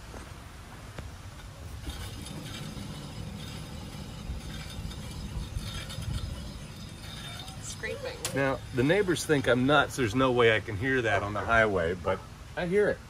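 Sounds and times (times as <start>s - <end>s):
wheel bearing scraping: 1.2s - 11.4s.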